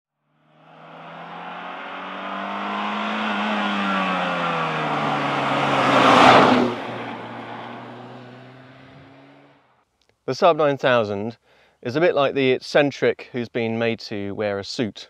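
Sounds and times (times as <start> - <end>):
car passing by: 0.4 - 9.6.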